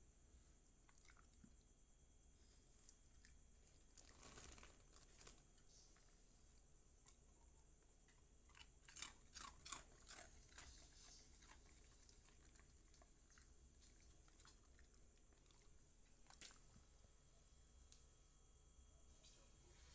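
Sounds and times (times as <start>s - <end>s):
dog crunching food: 7.0s - 16.7s.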